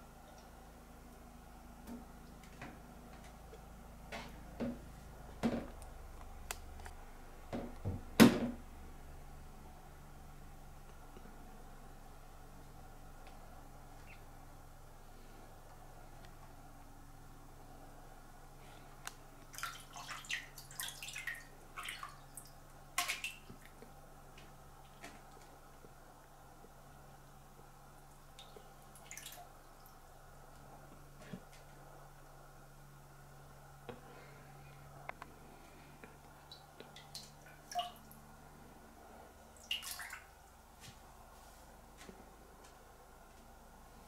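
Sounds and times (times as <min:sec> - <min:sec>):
cat splashing toilet water: 0:19.5 - 0:23.8, 0:28.3 - 0:29.9, 0:36.5 - 0:38.2, 0:39.6 - 0:40.3.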